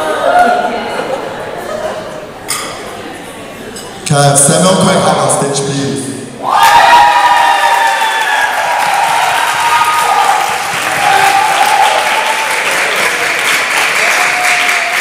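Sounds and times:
crowd applauding: 7.0s - 15.0s.

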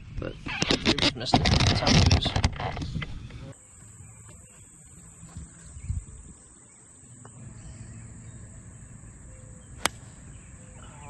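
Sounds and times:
wind rumble on microphone: 0.0s - 3.6s, 4.3s - 6.5s
insects droning: 3.5s - 11.0s.

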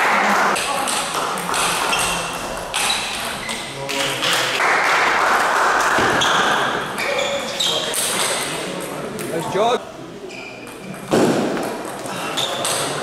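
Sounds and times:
table tennis ball pinging: 0.6s - 3.4s.

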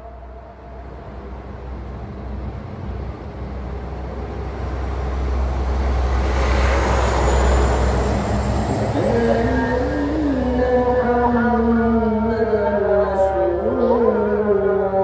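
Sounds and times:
approaching vehicle rushing: 4.4s - 11.3s.

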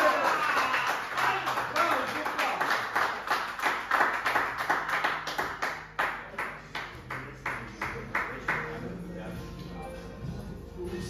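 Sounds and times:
spectators clapping: 0.0s - 8.8s.

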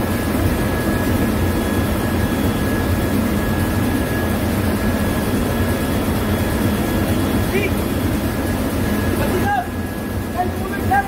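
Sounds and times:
engine room machinery drone: 0.0s - 11.0s.

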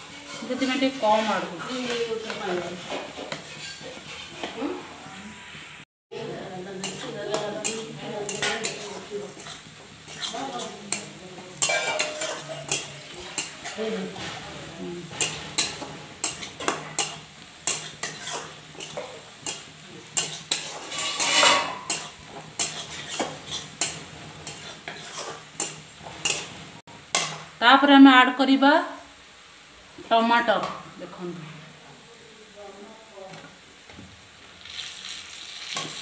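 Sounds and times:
metal spatula scraping and knocking: 0.0s - 4.6s, 6.8s - 27.4s
food sizzling faintly: 0.0s - 36.0s.

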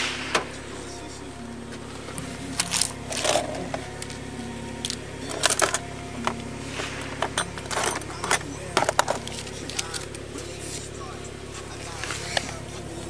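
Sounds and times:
soft background music: 0.0s - 13.0s
rustles and clicks of handled objects: 2.1s - 4.2s, 4.8s - 10.9s.

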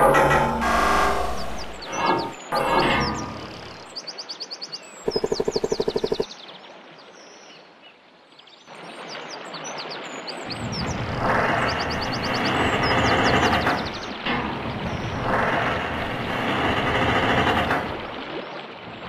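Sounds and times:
low rumbling noise: 0.0s - 3.8s, 10.6s - 18.3s
birds chirping: 0.0s - 4.0s, 5.0s - 6.3s, 10.5s - 16.2s
fast pulsing bird call: 5.1s - 6.2s.

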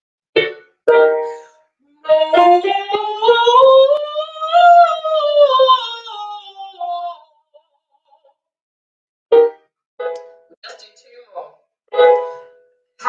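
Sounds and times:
woman singing vocal warm-up: 1.9s - 7.3s.

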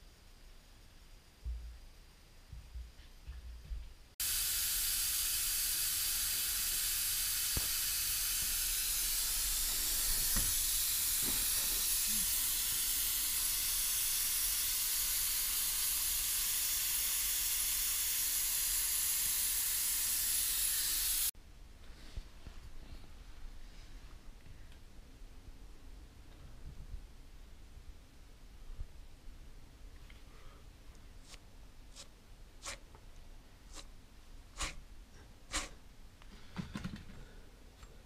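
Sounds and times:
loud steady hiss: 4.2s - 21.3s.

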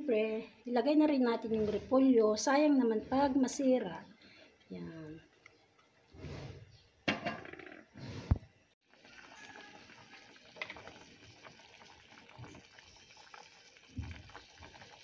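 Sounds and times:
soup bubbling in a pot: 8.8s - 15.0s.

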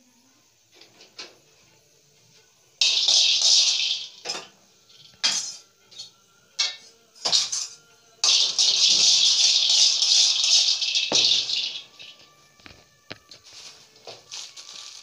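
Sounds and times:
peanuts scraping in metal pan: 2.8s - 6.1s, 7.2s - 12.2s.

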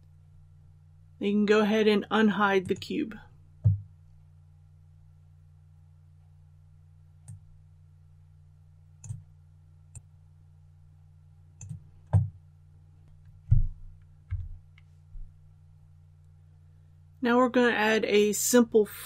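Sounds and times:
low hum: 0.0s - 17.8s
computer mouse clicks: 9.0s - 9.3s, 11.6s - 12.3s.

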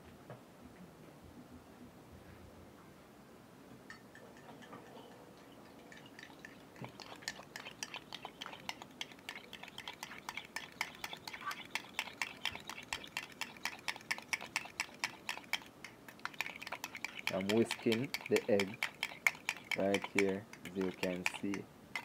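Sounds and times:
fork whisking eggs in bowl: 3.9s - 22.0s.

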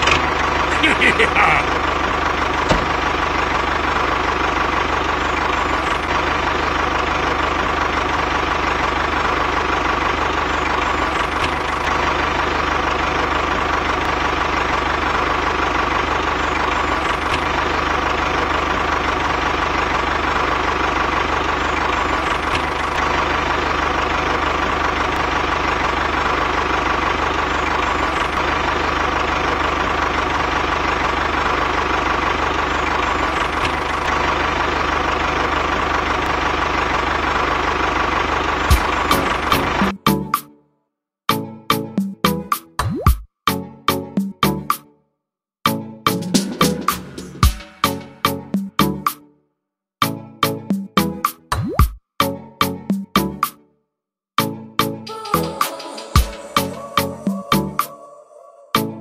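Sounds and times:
tractor engine idling: 0.0s - 40.2s.

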